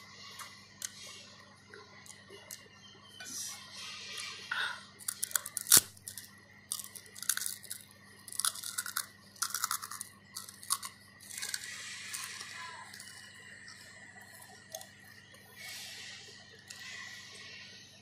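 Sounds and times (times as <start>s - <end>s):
crunching pork skin: 5.0s - 17.1s.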